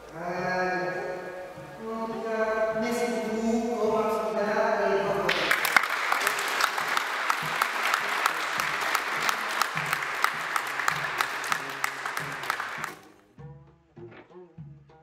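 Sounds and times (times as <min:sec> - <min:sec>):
people applauding: 0:05.3 - 0:13.0.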